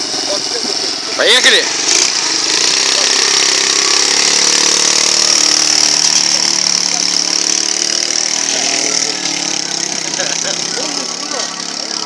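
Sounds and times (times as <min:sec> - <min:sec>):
high steady whine: 0:00.0 - 0:12.0
motorcycle engine running: 0:00.0 - 0:12.0.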